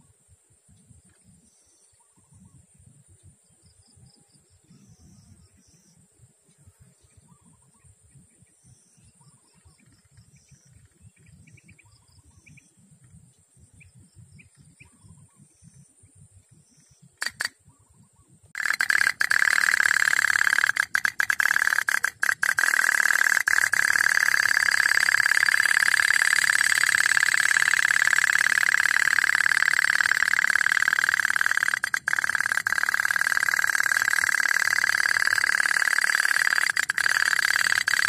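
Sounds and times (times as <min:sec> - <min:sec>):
sharp click: 0:17.2 - 0:17.6, 0:18.6 - 0:38.0
high insect buzz: 0:18.5 - 0:38.0.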